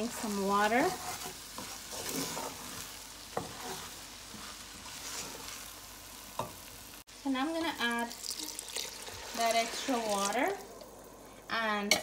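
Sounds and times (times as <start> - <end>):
wooden spoon stirring in metal pot: 0.0 - 5.6
rice sizzling in oil: 0.0 - 12.0.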